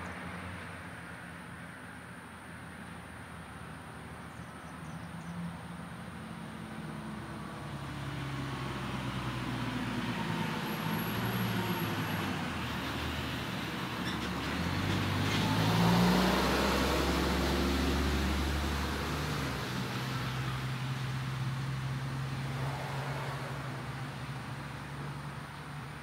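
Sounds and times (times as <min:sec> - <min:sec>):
motor vehicle running: 0:06.4 - 0:26.0.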